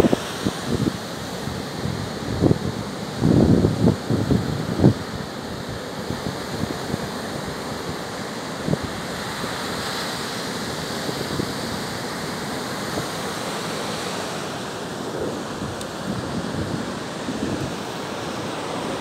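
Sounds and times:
wind buffeting microphone: 0:00.0 - 0:07.2, 0:15.0 - 0:19.0
surf breaking on beach: 0:00.0 - 0:19.0.

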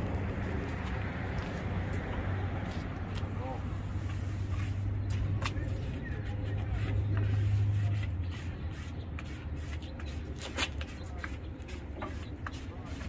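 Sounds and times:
vehicle engine hum: 0:00.0 - 0:13.0
squeegee scraping: 0:03.8 - 0:13.0.

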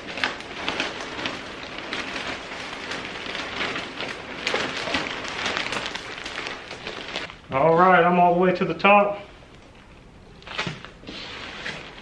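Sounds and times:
granules pouring from sack: 0:00.0 - 0:07.4.

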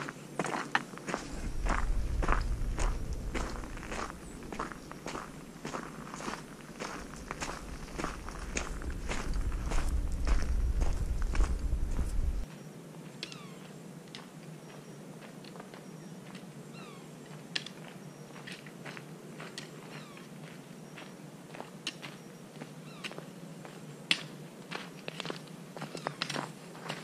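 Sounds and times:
faint animal calls: 0:13.2 - 0:13.7, 0:16.7 - 0:17.2, 0:19.9 - 0:20.4.

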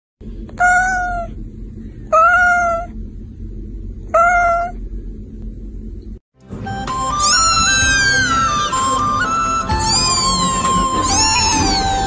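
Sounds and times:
low steady hum: 0:00.2 - 0:12.0
cat meowing: 0:00.6 - 0:01.3, 0:02.1 - 0:02.9, 0:04.1 - 0:04.8, 0:07.2 - 0:08.3, 0:09.8 - 0:12.0.

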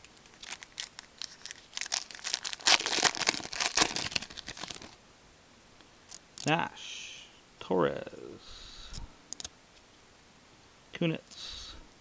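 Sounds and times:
foil wrapper crinkling and tearing: 0:00.2 - 0:05.0.

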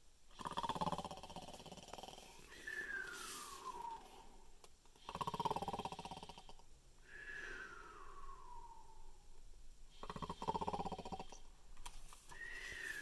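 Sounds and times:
man imitating snoring: 0:00.3 - 0:02.6, 0:05.0 - 0:06.6, 0:09.9 - 0:11.4.

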